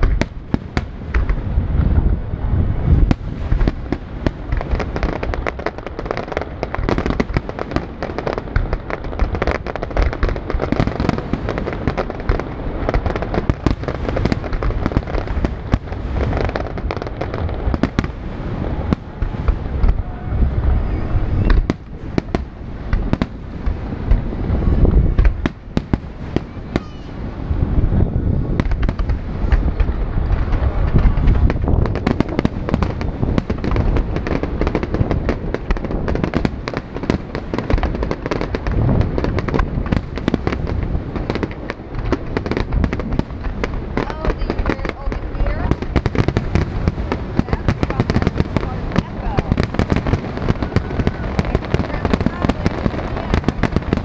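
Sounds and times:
fireworks low booms: 0:00.0 - 0:54.0
fireworks sharp bangs: 0:00.0 - 0:54.0.

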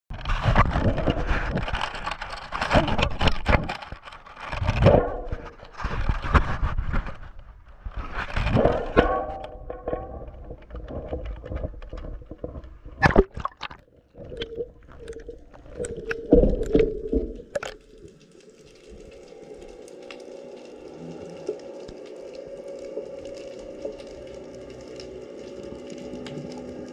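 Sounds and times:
water splashing: 0:08.1 - 0:26.9.

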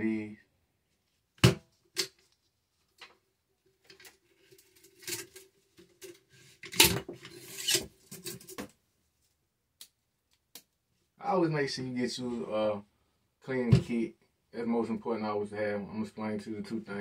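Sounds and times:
cleaning rod scraping in metal: 0:07.3 - 0:07.9.

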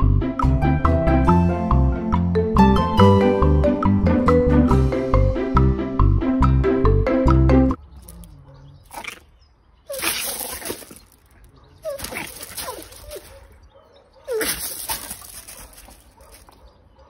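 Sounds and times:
small dog yapping: 0:09.9 - 0:13.6, 0:14.2 - 0:16.6.

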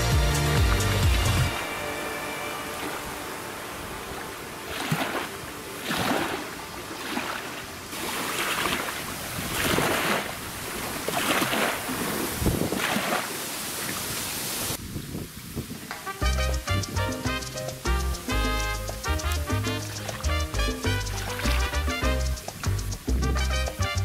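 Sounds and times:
small waves splashing on bank: 0:01.1 - 0:14.8, 0:18.4 - 0:23.5
wind noise: 0:09.0 - 0:18.2.

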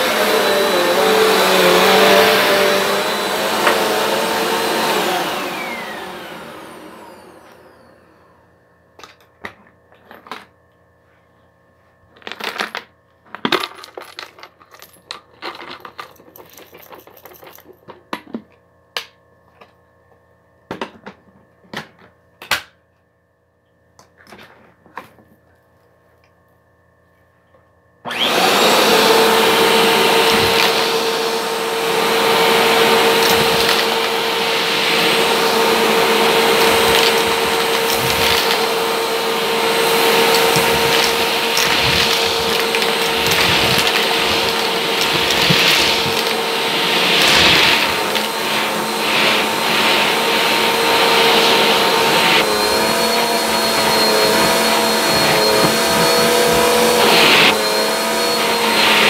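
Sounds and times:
vacuum cleaner whining: 0:00.0 - 0:09.2, 0:28.0 - 0:59.0
coins clicking and clattering: 0:12.2 - 0:17.8.

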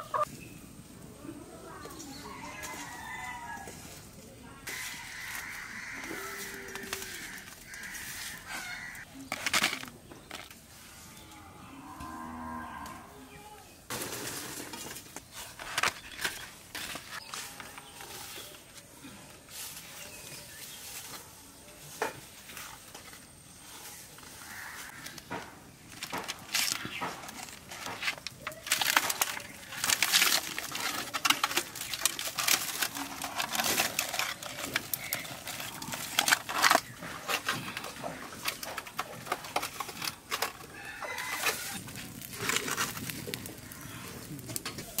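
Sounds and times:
leaves and wrapping crackling: 0:00.0 - 0:45.0.

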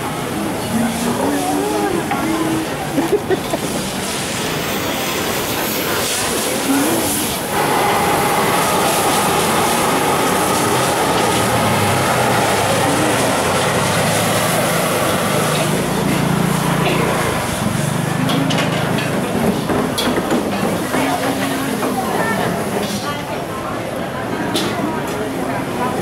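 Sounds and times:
roar of gas burner flames: 0:00.0 - 0:20.4
food sizzling in a wok: 0:02.6 - 0:18.1.

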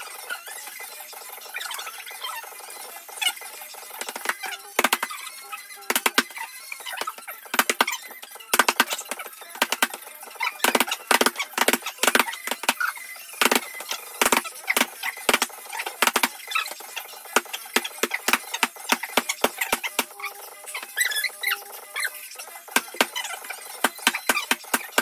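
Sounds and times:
boxing gloves slapping pads: 0:04.0 - 0:05.1, 0:05.9 - 0:06.3, 0:07.5 - 0:07.9, 0:08.5 - 0:10.0, 0:10.6 - 0:12.8, 0:13.4 - 0:16.4, 0:17.4 - 0:20.1, 0:23.8 - 0:25.0.

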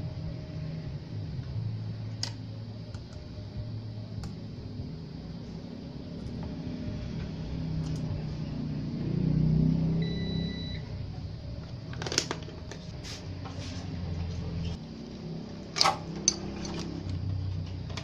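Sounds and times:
multimeter beep: 0:10.0 - 0:10.9.

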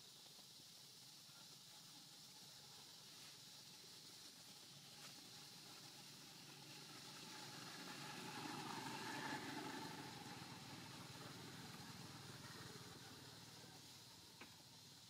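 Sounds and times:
faint passing vehicle engine: 0:03.4 - 0:15.0.

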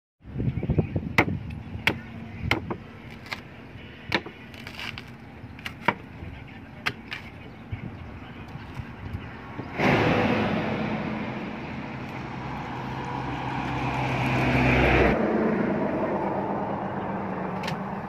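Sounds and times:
knife chopping fruit husk: 0:01.2 - 0:03.4, 0:04.1 - 0:06.1.

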